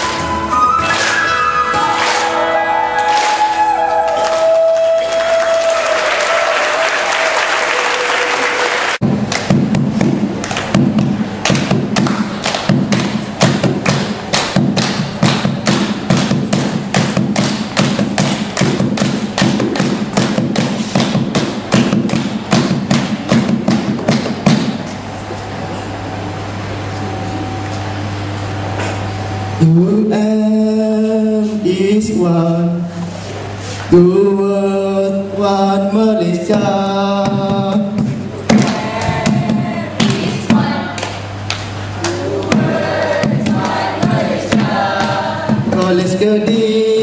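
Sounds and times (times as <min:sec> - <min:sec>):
crowd clapping and cheering: 0:00.0 - 0:24.5, 0:38.5 - 0:45.9
hand drum playing rhythm: 0:09.0 - 0:24.6.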